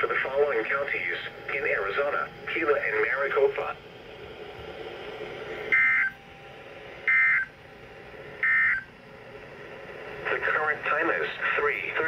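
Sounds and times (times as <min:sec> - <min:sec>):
two-tone data bursts: 0:05.7 - 0:06.2, 0:07.1 - 0:07.5, 0:08.4 - 0:08.9.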